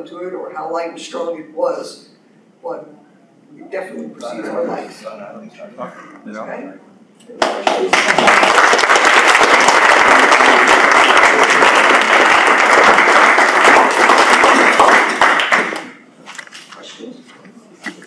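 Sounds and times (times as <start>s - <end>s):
audience applauding: 7.4s - 16.0s.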